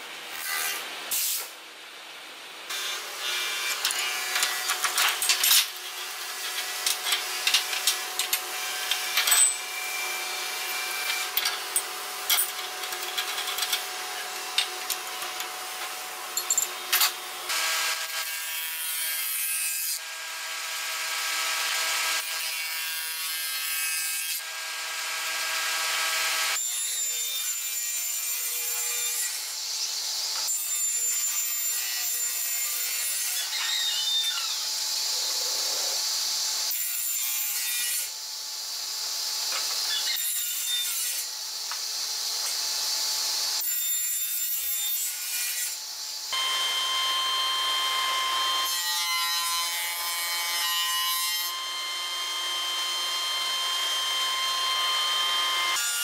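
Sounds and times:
table saw crosscutting wood: 2.7 - 38.7, 39.3 - 56.0
metal cutter knives clinking: 16.4 - 17.1.

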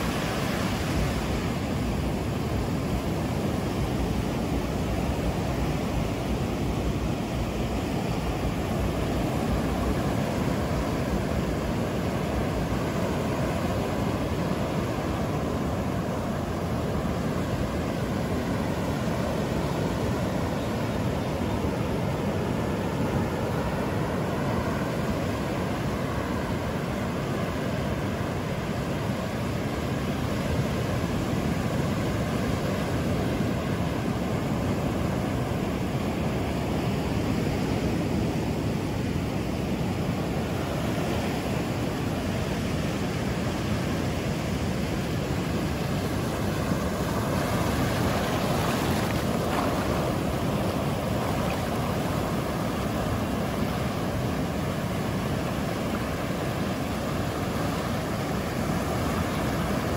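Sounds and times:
ocean waves washing onto beach: 0.0 - 59.9.

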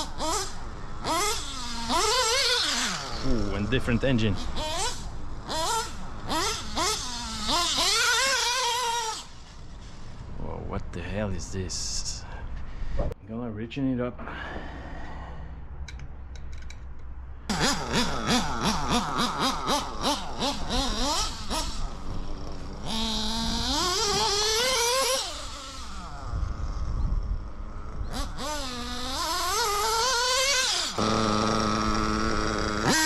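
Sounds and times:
model car engine revving: 0.0 - 10.2, 17.5 - 33.0.

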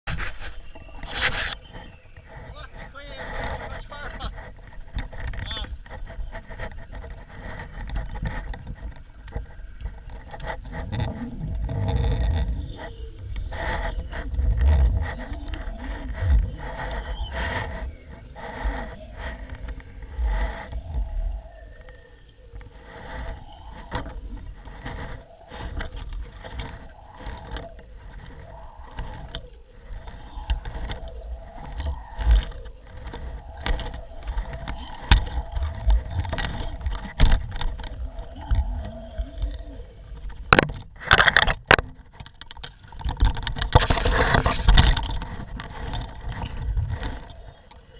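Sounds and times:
wind buffeting microphone: 0.0 - 47.9
camera clattering: 40.5 - 47.4.

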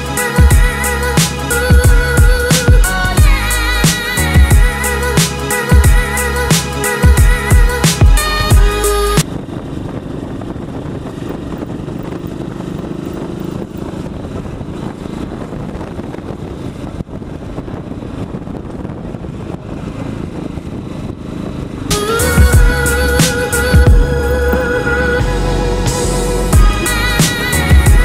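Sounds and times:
music: 0.0 - 9.2, 21.9 - 28.0
motorcycle engine running: 0.0 - 28.0
wind noise: 0.0 - 28.0.

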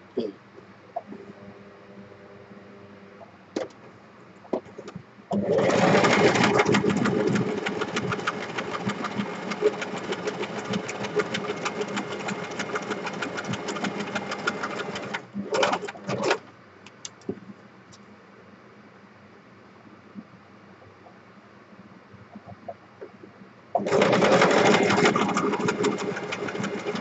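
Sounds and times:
sewing machine motor hum: 5.3 - 16.4, 23.8 - 27.0.

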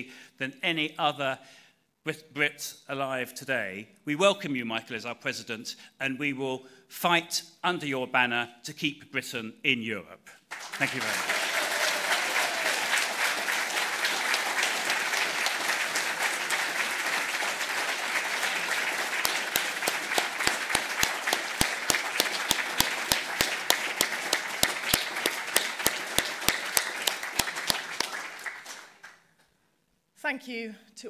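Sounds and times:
audience applauding: 10.5 - 29.3
loud evenly spaced claps: 10.5 - 29.5.

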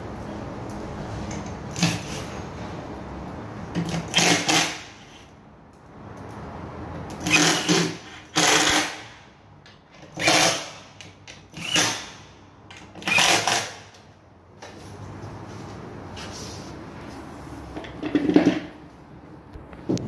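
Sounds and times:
cordless drill driving screws: 7.2 - 9.0, 10.2 - 10.8, 11.4 - 12.2, 13.0 - 13.9.

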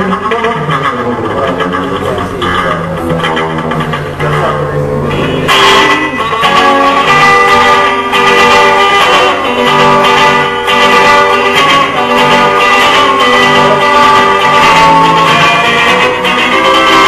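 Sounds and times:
instrumental guitar music: 0.0 - 17.0.

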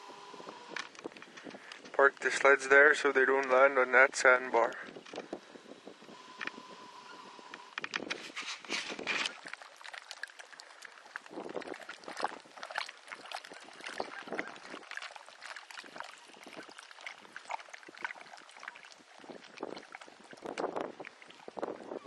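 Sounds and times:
water lapping: 0.0 - 22.0.

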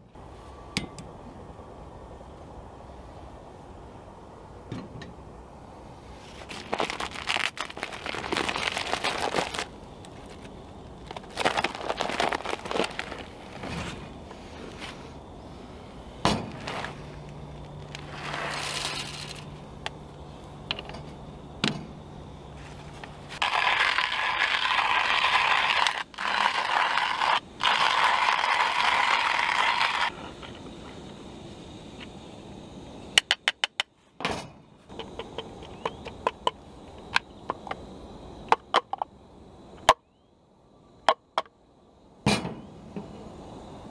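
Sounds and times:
bag rustling: 6.3 - 15.0
hand grinder crunching beans: 6.6 - 9.7, 11.1 - 13.3, 23.4 - 30.1
coffee beans rattling into grinder: 18.2 - 19.4, 23.4 - 30.1.

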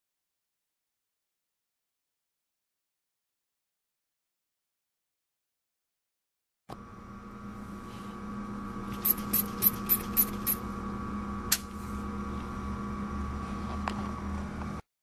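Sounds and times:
steady hum: 6.7 - 14.8.

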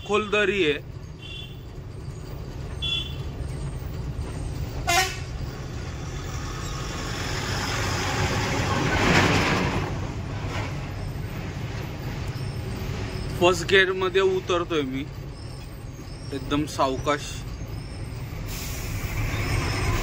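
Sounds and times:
truck engine running: 0.0 - 16.6
horn toots: 4.8 - 5.3.

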